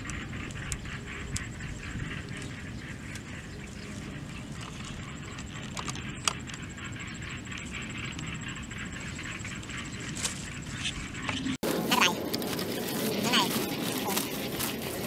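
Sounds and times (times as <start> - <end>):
outdoor background noise: 0.0 - 15.0.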